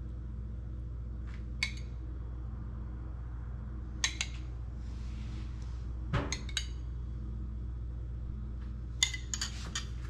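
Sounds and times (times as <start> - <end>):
steady low hum: 0.0 - 10.0
metal spoon clinking on ceramic bowl: 9.0 - 10.0.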